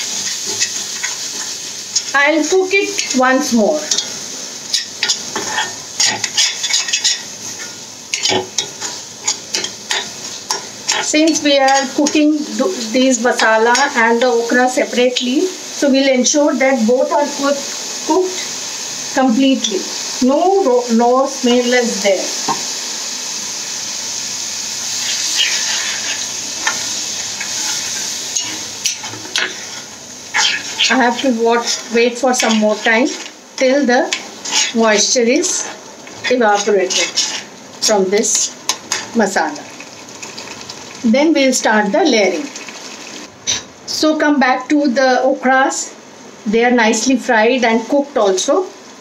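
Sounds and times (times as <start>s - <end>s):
masala sizzling in oil: 0.0s - 49.0s
spoon scraping pan: 0.1s - 2.1s, 3.8s - 12.5s, 24.9s - 40.7s
spoon knocking pan: 22.4s - 22.7s.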